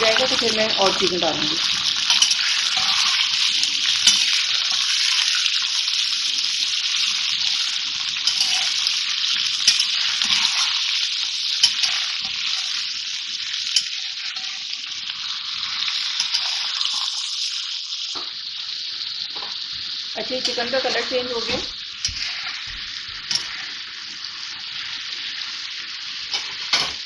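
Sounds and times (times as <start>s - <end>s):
chicken sizzling in hot oil: 0.0s - 27.0s
metal spatula clinking on pan: 2.1s - 3.0s, 4.0s - 4.4s, 8.2s - 8.8s, 9.6s - 10.4s, 11.6s - 12.5s, 13.7s - 14.5s.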